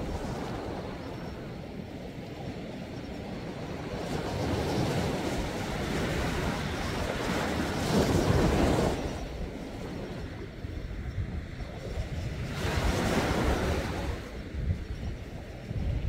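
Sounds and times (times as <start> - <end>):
sea waves washing onto shore: 3.4 - 14.6.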